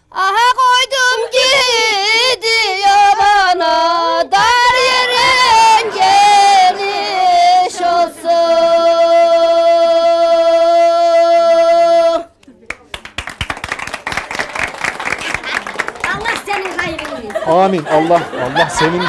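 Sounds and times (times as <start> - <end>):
woman singing folk song: 0.1 - 12.4.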